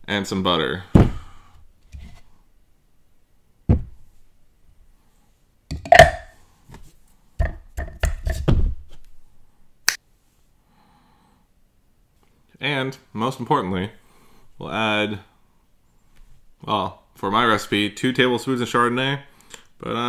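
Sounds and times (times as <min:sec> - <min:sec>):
plastic parts knocking and clacking: 0:07.4 - 0:08.6.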